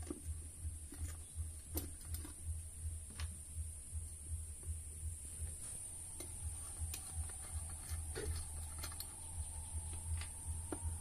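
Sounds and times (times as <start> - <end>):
low hum: 0.0 - 11.0
screwdriver clicking on metal: 6.2 - 9.2.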